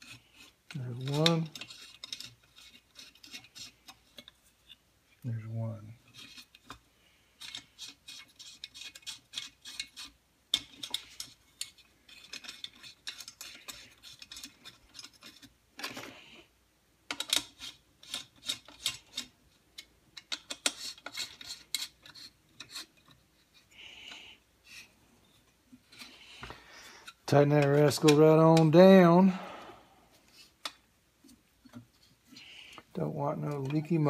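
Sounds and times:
wrench scraping on metal: 0.0 - 4.3, 6.0 - 6.8, 7.4 - 16.0, 17.1 - 29.2.

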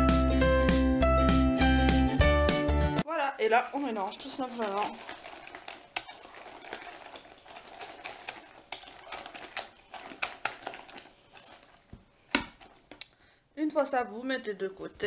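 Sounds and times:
spatula stirring batter in bowl: 3.5 - 13.0.

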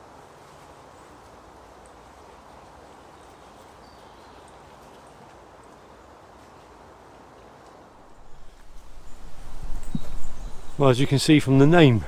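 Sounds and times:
air hissing through trees: 7.9 - 12.0
high bird chirps: 8.3 - 11.0.

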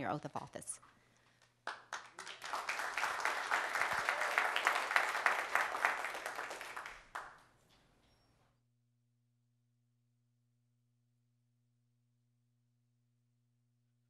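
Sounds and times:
crowd applause: 1.6 - 7.5.

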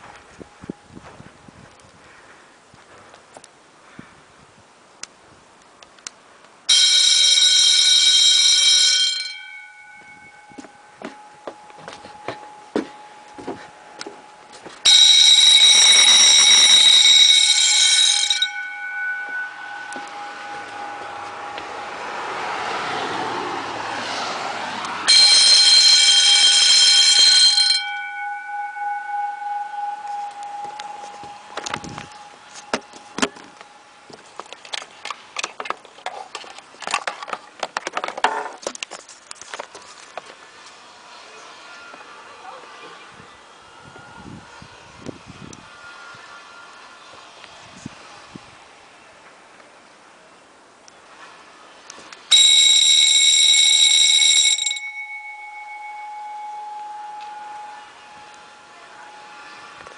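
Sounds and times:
faint steady tone: 5.6 - 23.3, 25.0 - 34.2, 40.8 - 59.9
electric bell ringing: 6.7 - 23.0, 25.0 - 33.2, 52.3 - 59.8.

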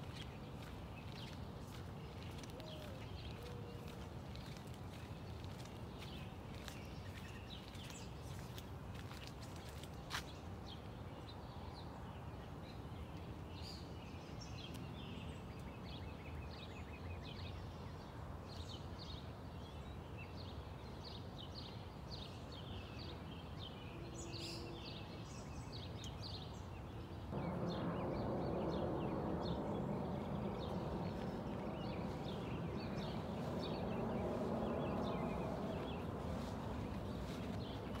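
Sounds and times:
birds chirping: 0.0 - 17.9, 21.1 - 38.0
loud rushing noise: 27.3 - 38.0.

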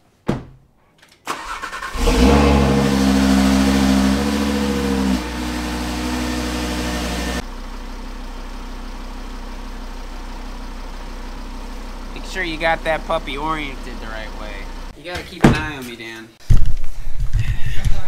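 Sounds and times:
starter cranking engine: 1.3 - 2.5
car engine idling: 1.4 - 15.0.

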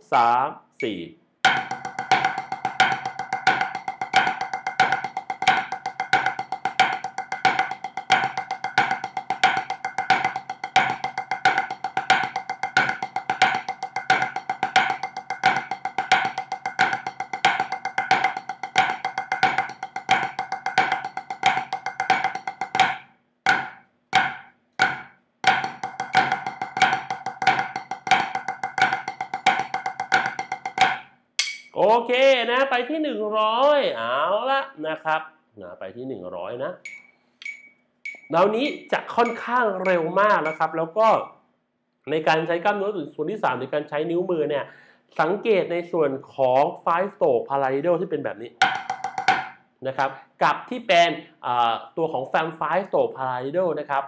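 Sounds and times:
drumsticks on practice pad: 0.8 - 31.8, 36.8 - 38.6, 39.2 - 40.7.

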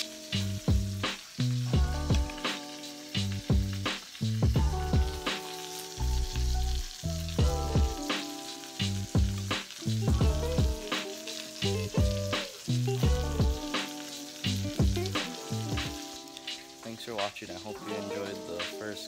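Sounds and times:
background music with steady beat: 0.0 - 19.0.

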